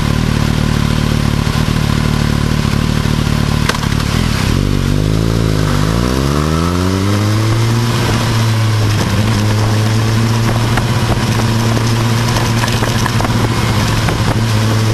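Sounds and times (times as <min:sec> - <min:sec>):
motorcycle engine running: 0:00.0 - 0:14.9
road and wind noise: 0:00.0 - 0:14.9.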